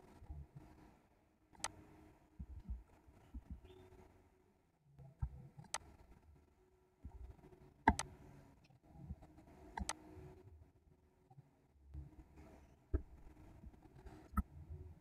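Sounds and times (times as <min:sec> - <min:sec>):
computer mouse clicking: 0:05.2 - 0:05.9, 0:07.8 - 0:08.2, 0:09.7 - 0:10.1.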